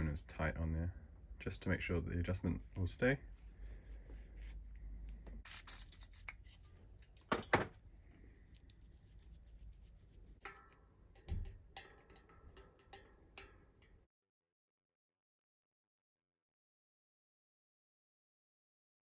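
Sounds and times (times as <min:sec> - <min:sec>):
small metallic clicks and taps: 0:09.7 - 0:14.1.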